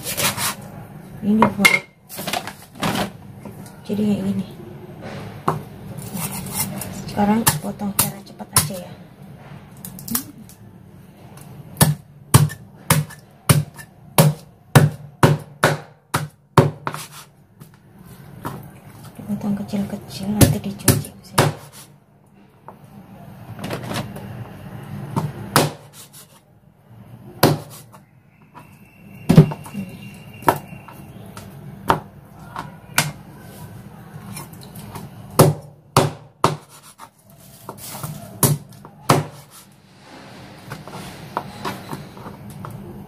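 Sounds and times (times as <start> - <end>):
knife chopping on plastic board: 11.8 - 17.3, 20.4 - 21.8, 25.2 - 26.2, 27.4 - 27.9, 31.8 - 33.2, 35.4 - 39.6.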